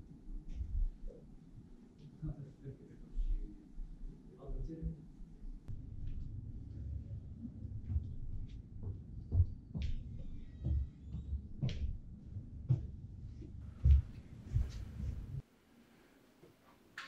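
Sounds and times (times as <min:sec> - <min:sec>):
steady low rumble: 0:00.0 - 0:15.4
footsteps climbing stairs: 0:07.6 - 0:15.4.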